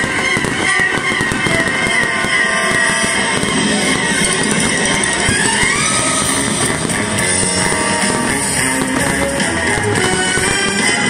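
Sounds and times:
rising guitar bend: 1.6s - 11.0s
rock music with guitar: 2.4s - 11.0s.

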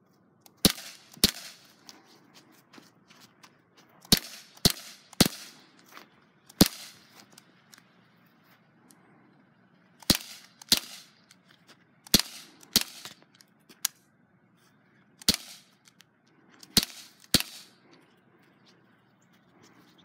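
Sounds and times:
bb pistol shots: 0.5s - 1.7s, 4.0s - 5.6s, 6.5s - 7.1s, 10.0s - 11.2s, 12.0s - 13.2s, 15.2s - 15.8s, 16.6s - 17.8s.

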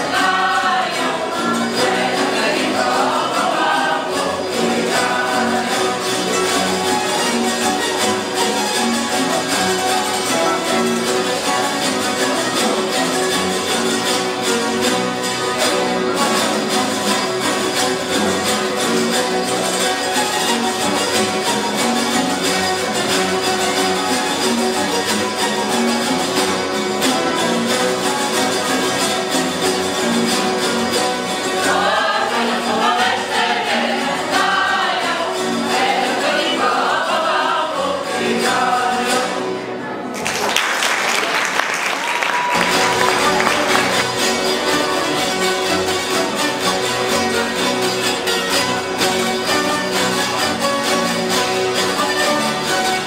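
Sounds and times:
voices singing: 0.0s - 7.5s, 31.3s - 39.8s.

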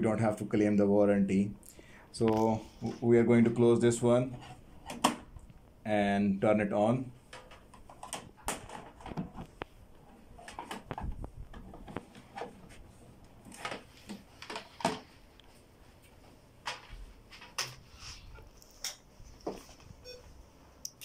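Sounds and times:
hands handling power cord: 7.3s - 15.2s.

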